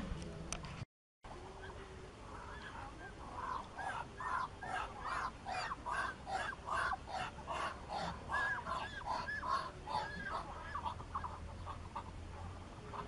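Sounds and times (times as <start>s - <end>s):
ducks calling harshly: 2.4s - 12.2s.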